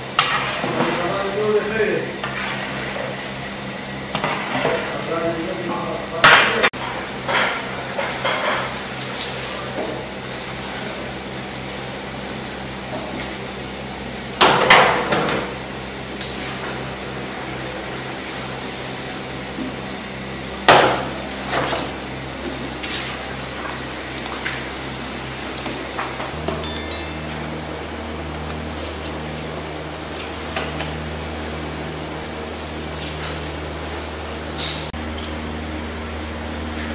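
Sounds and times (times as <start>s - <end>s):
loud ringing clangs: 26.4s - 28.0s
steady low hum: 34.9s - 36.9s.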